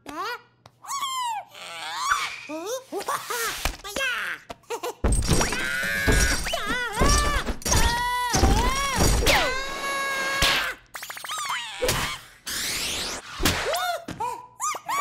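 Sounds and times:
cartoon chick squealing: 0.8s - 2.6s, 9.6s - 12.8s.

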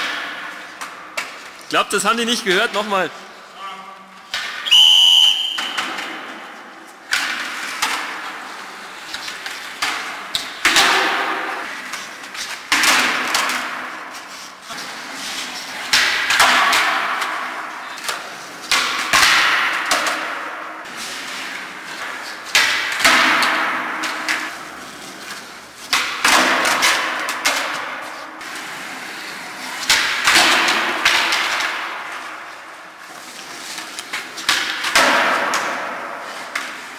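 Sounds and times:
skateboard wheels rolling on concrete: 4.3s - 36.9s
skateboard pops and landing slaps: 9.2s - 13.9s, 15.8s - 20.7s, 25.9s - 28.0s, 34.0s - 36.9s.

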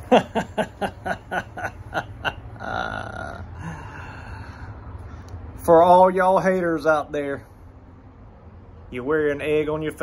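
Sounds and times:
man laughing: 0.0s - 4.4s
breathy wheeze: 2.6s - 5.3s.

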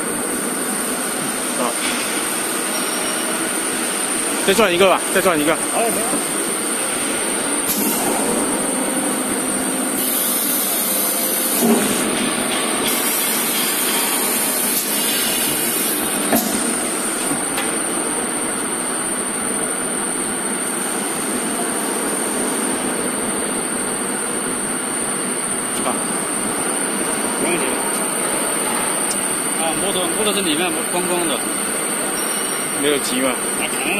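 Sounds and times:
high steady whine: 2.7s - 21.6s.

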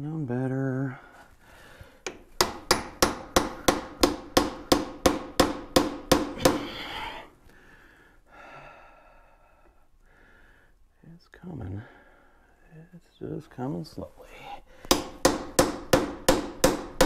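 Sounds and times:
hammer striking metal: 2.1s - 6.6s, 14.9s - 17.0s.

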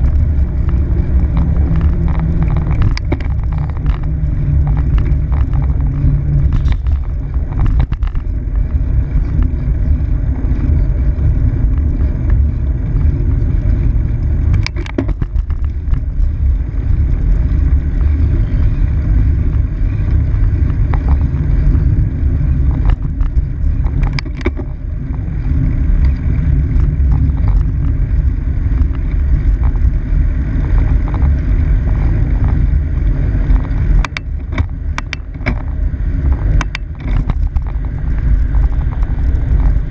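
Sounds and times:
bicycle tyre rolling: 0.0s - 39.9s
bike rattling over bumps: 0.0s - 39.9s
wind buffeting: 0.0s - 39.9s.

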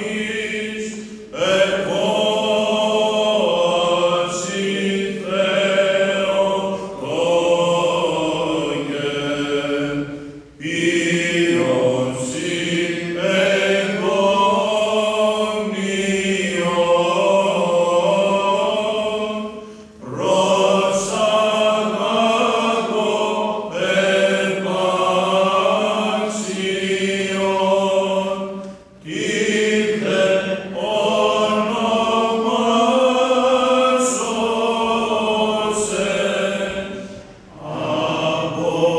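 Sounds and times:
low vocal drone: 0.0s - 38.9s
men chanting a hymn: 0.0s - 38.9s.

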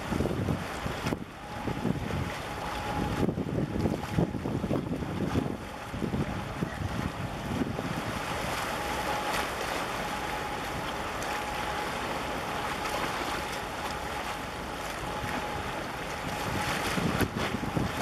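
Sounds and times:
wind buffeting microphone: 0.0s - 8.7s, 15.0s - 18.0s
sea water washing against concrete: 0.0s - 18.0s.

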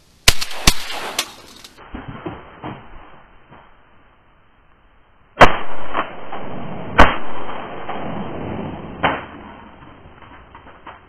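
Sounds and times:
shotgun blasts: 0.2s - 2.4s, 5.4s - 9.9s.

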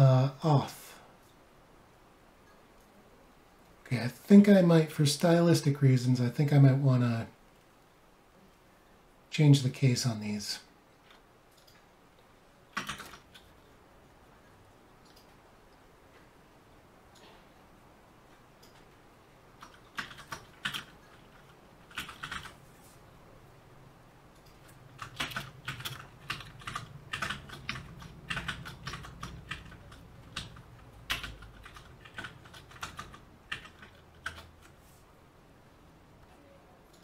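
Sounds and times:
typing on computer keyboard: 12.7s - 13.5s, 19.6s - 22.6s, 24.5s - 34.7s.

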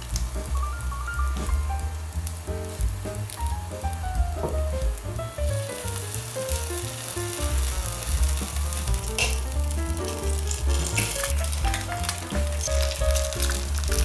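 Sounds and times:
background music with bass line: 0.0s - 14.0s
food sizzling in oil: 5.6s - 14.0s.

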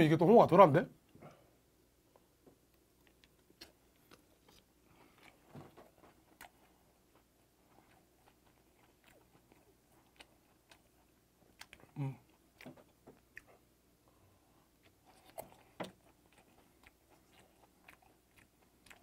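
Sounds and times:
chewing: 3.0s - 19.0s
person humming low: 12.0s - 12.2s.

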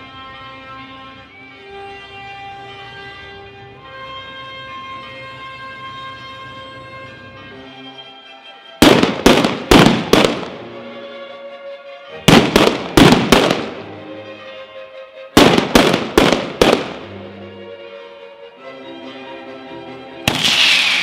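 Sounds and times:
music: 0.0s - 21.0s
firecracker bangs: 8.8s - 10.6s, 12.3s - 13.8s, 15.4s - 17.1s, 20.3s - 21.0s.

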